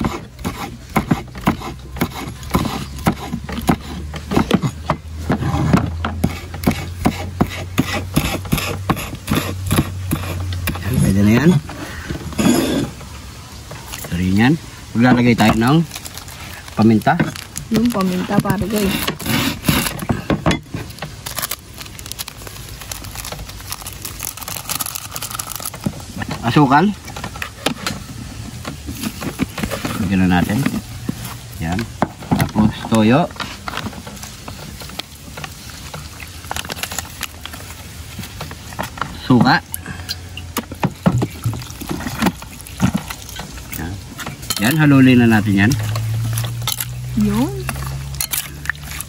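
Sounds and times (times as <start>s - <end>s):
knife chopping on wooden board: 0.0s - 10.8s.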